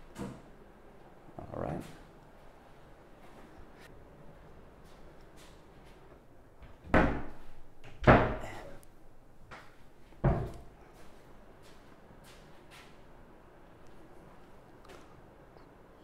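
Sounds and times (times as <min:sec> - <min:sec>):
cabinet doors thudding shut: 0:08.0 - 0:08.6.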